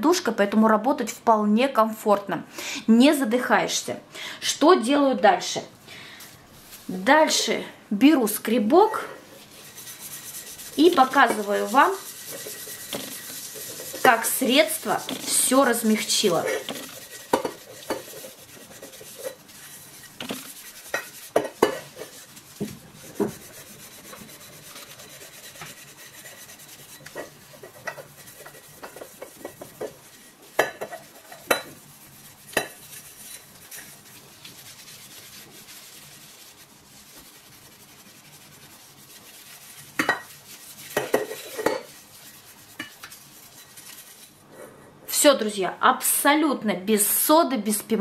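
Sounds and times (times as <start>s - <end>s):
scraper scratching saucepan bottom: 8.8s - 44.4s.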